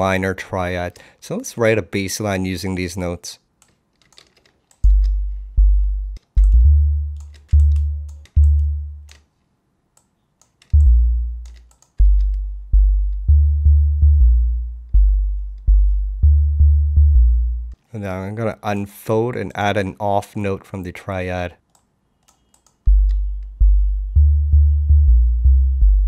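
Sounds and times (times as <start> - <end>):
deep synth bass notes: 4.9 - 9.1, 10.8 - 17.8, 22.9 - 26.0
faint clicks: 21.7 - 23.5.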